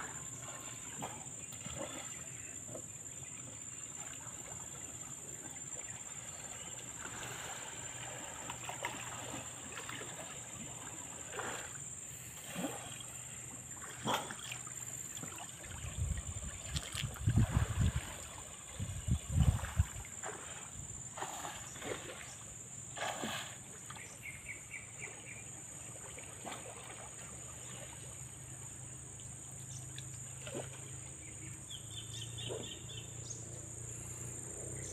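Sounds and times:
high insect drone: 0.0 - 24.9, 26.8 - 34.9.

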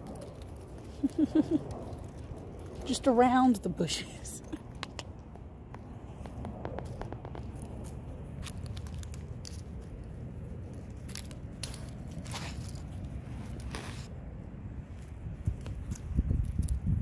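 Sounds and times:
low rumble: 4.4 - 17.0
dry leaves and twigs crunching: 6.9 - 14.2.

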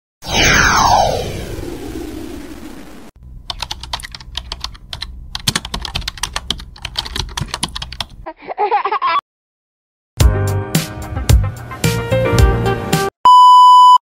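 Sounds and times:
falling swoosh effect: 0.2 - 3.1
keyboard typing clicks: 3.5 - 8.2.

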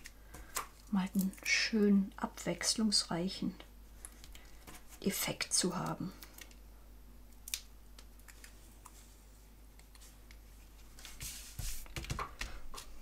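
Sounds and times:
hands tapping card: 11.2 - 12.9.

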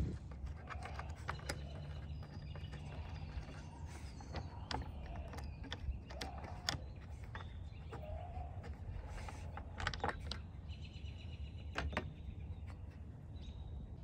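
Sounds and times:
steady low rumble: 0.0 - 0.6
plastic clips clicking and creaking: 0.1 - 10.6.

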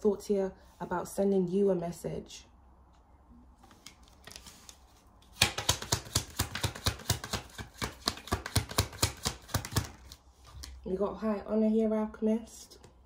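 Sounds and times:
cards being shuffled: 3.6 - 10.8.

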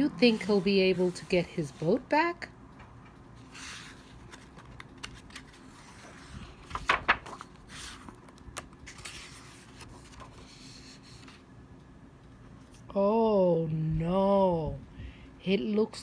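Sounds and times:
book pages rustling: 3.4 - 11.4.

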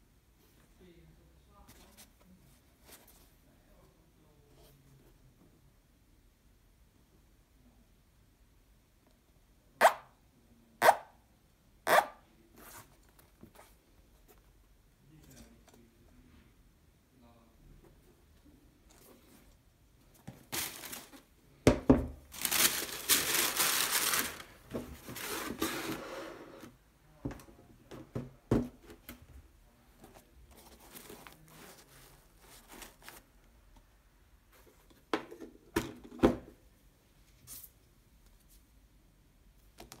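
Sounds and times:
tissue paper rustling: 20.4 - 21.3, 22.3 - 26.0, 30.2 - 33.3.

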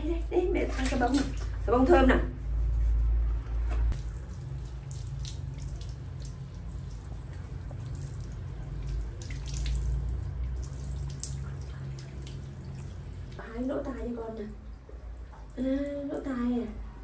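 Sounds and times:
shower water splashing on tiles: 0.4 - 2.0, 3.9 - 17.0.

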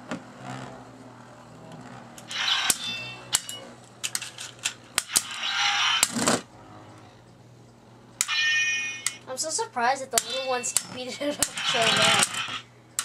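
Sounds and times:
spinning tops clacking together: 2.2 - 6.3, 10.2 - 12.7.

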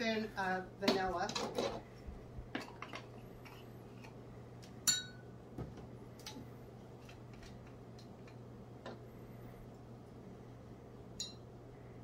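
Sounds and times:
faint low hum: 0.0 - 12.0
ringing clink: 4.9 - 5.2, 11.2 - 11.4.

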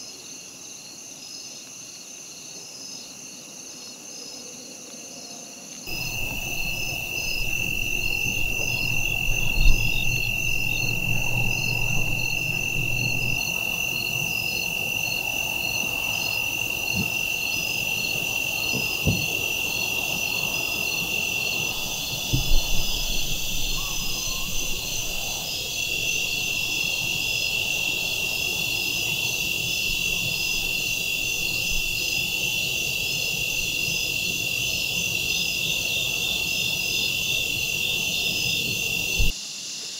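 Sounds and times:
crickets and insects chirping: 0.0 - 39.9
low thumps: 5.9 - 13.5.

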